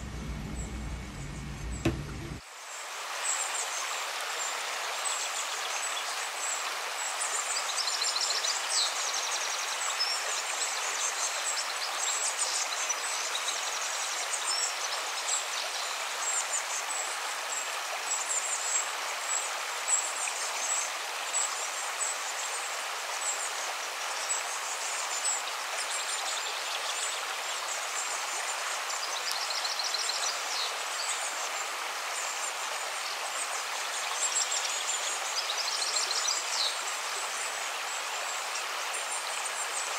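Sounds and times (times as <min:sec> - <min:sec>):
running water rushing: 0:00.0 - 0:07.5, 0:15.9 - 0:39.9.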